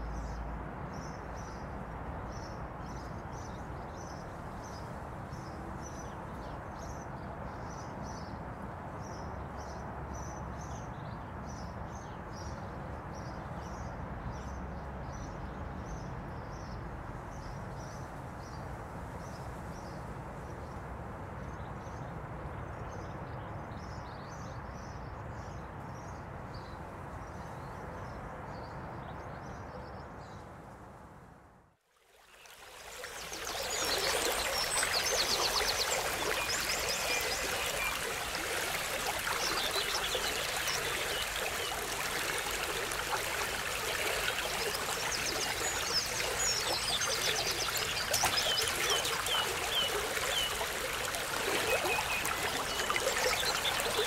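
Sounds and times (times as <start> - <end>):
river water rushing: 32.4 - 54.0
birds chirping: 33.0 - 54.0.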